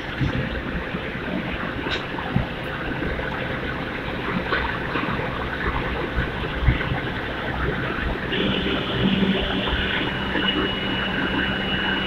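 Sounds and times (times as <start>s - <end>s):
industrial rumble and hiss: 0.0s - 12.0s
low hum: 0.0s - 12.0s
steady high tone: 8.3s - 12.0s.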